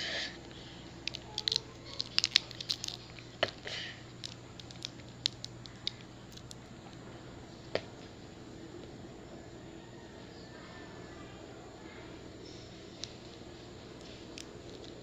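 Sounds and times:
candy wrapper crinkling: 0.4s - 8.2s, 12.3s - 15.0s.

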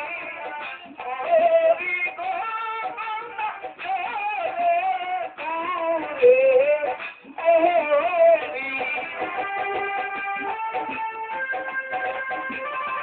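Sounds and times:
instrumental backing: 0.0s - 13.0s
person singing: 0.0s - 13.0s.

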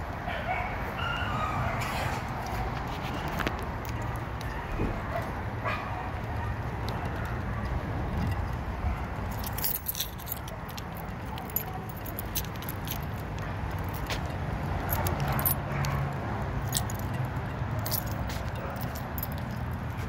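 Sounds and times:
keys jingling: 8.1s - 20.0s.

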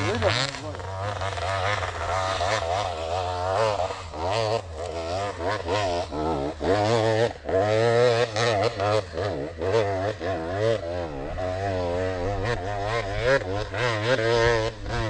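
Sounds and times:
two-stroke motorcycle engine revving: 0.0s - 15.0s.

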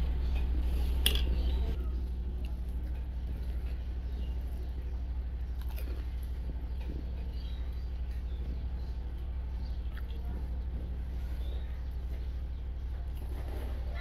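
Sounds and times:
low hum: 0.0s - 14.0s
crisp food crunching: 5.6s - 6.4s.

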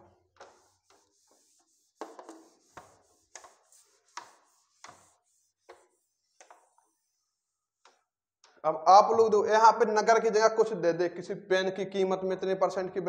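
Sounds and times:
eraser rubbing on whiteboard: 0.4s - 8.1s.

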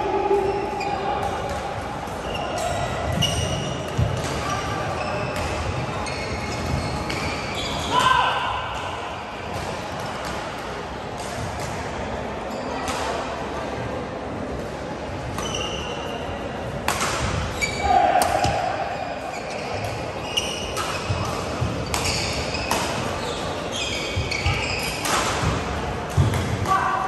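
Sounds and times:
shoes squeaking on court: 2.2s - 8.0s, 15.3s - 16.4s, 17.2s - 25.5s
racket hitting shuttlecock: 16.8s - 17.5s, 20.6s - 23.2s.

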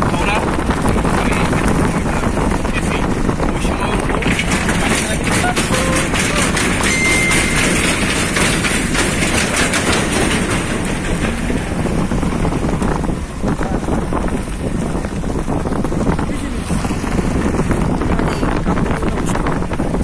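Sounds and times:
vehicle road noise: 0.0s - 20.0s
small rattles and knocks: 3.9s - 16.0s.

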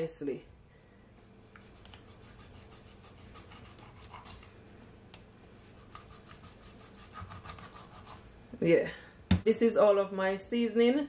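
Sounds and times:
knife scraping fish skin: 1.6s - 4.5s, 5.7s - 8.2s.

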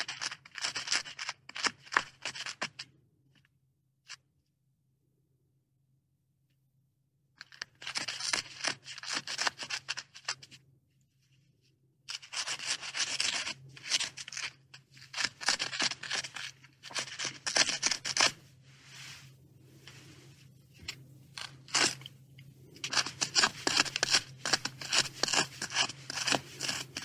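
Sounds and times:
beaver gnawing: 20.7s - 27.0s.

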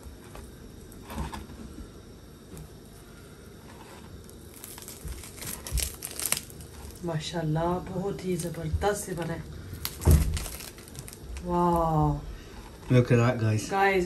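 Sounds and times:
meat tearing with wet crackling: 4.2s - 7.0s, 9.6s - 11.5s.

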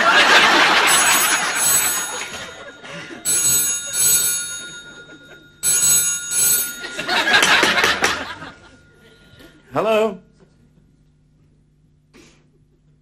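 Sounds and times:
telephone bell ringing: 0.0s - 9.4s.

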